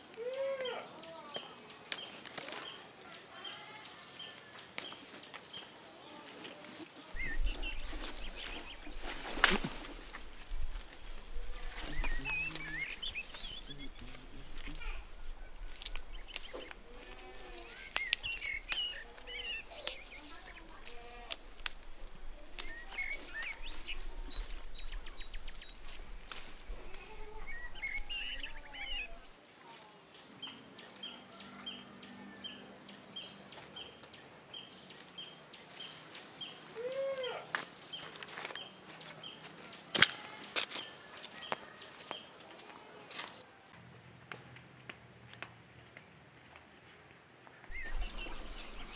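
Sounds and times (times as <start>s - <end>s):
birds chirping: 0.0s - 29.4s, 47.6s - 48.9s
leaves rustling and snapping: 0.1s - 3.2s, 3.8s - 30.0s, 37.5s - 43.4s, 44.2s - 48.9s.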